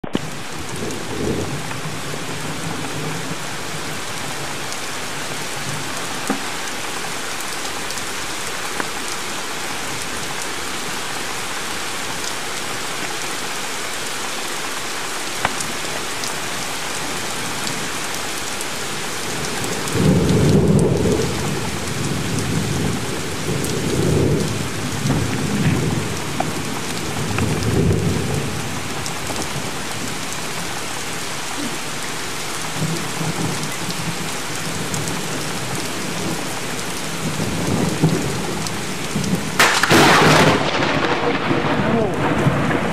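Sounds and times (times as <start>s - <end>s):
steady rain: 0.0s - 42.9s
thunder rumbling: 0.1s - 4.6s, 19.0s - 30.7s, 32.7s - 42.9s.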